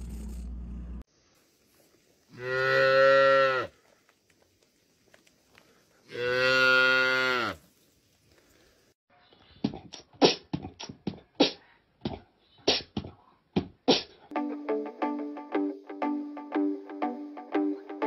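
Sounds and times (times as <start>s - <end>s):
guitar music: 14.3s - 18.0s.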